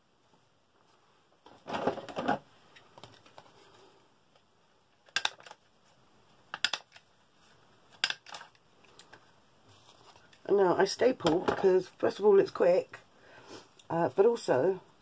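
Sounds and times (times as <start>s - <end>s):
paper scuffling: 9.6s - 10.4s.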